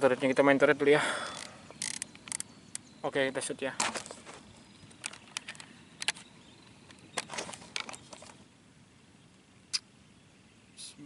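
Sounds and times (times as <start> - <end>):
faint outdoor background: 0.0 - 11.0
clicks and knocks of handling: 3.8 - 6.3, 6.9 - 8.4.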